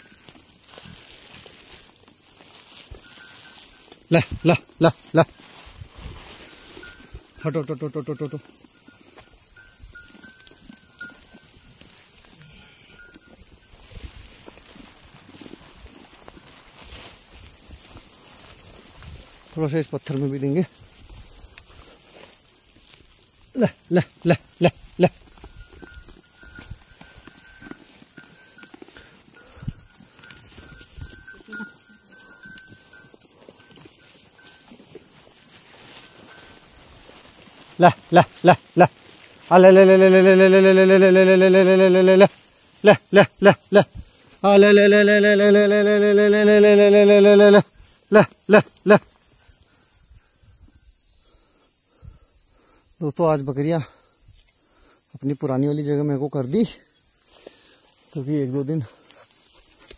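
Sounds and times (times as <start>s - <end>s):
footsteps through grass: 0.0s - 7.6s, 13.0s - 44.7s, 57.0s - 59.9s
insects chirring: 0.0s - 59.9s
goats licking and nibbling: 13.1s - 19.5s, 25.1s - 38.4s.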